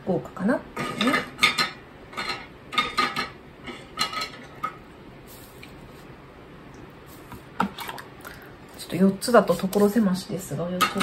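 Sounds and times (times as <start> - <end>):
dishes and utensils clinking: 0.8 - 4.8, 10.8 - 11.0.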